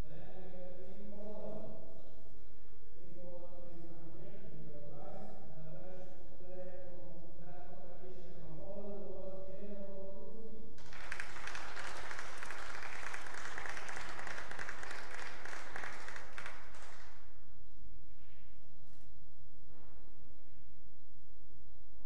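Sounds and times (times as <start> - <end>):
applause: 10.8 - 17.3.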